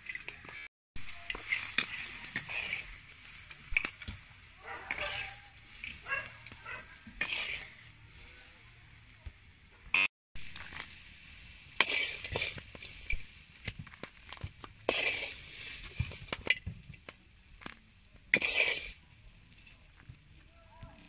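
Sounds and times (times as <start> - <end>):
hot oil sizzling: 0.0 - 21.0
metal spoon scraping in a wok: 1.0 - 9.0, 10.0 - 16.6, 18.3 - 19.8.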